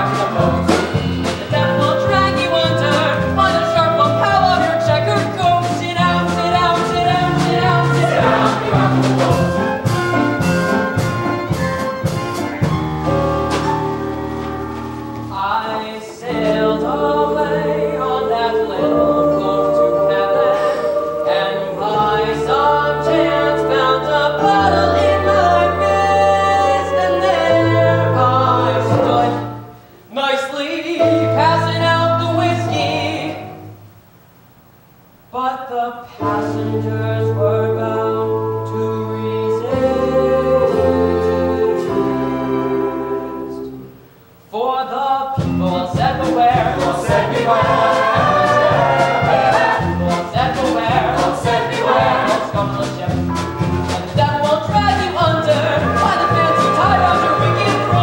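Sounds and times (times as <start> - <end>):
brassy band: 0.0 - 15.5, 16.3 - 29.6, 36.2 - 44.0, 45.4 - 58.0
chorus singing: 0.0 - 33.8, 35.4 - 58.0.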